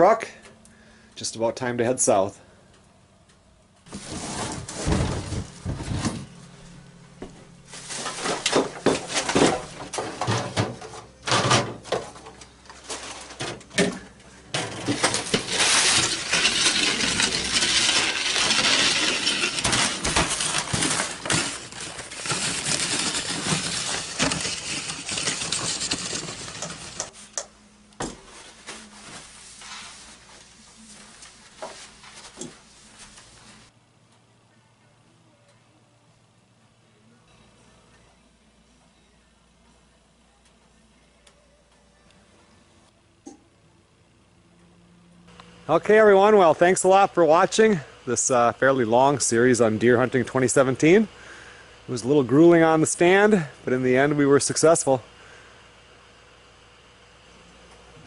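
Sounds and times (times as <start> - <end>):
items knocking and clattering: 3.9 - 6.3, 7.2 - 27.1.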